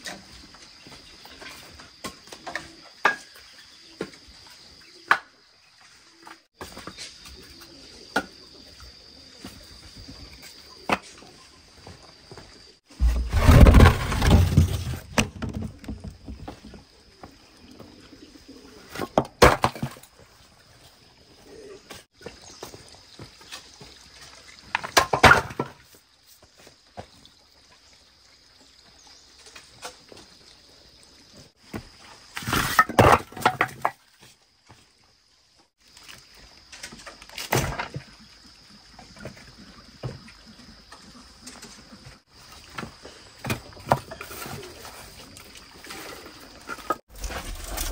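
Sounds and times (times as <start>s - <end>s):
firewood clattering into pit: 12.9s - 16.9s, 18.9s - 20.2s, 24.6s - 26.0s, 31.7s - 34.4s, 36.0s - 38.2s, 42.6s - 47.9s.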